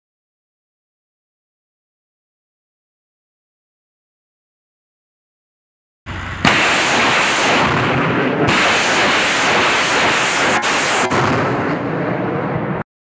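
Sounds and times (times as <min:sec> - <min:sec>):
rocket salvo roaring: 0:06.1 - 0:12.8
sharp cracks: 0:06.4 - 0:11.9.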